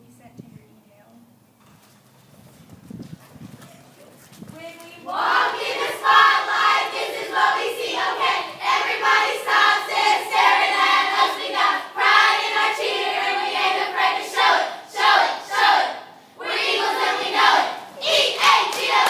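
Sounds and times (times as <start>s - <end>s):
girls chanting a cheer: 5.0s - 19.0s.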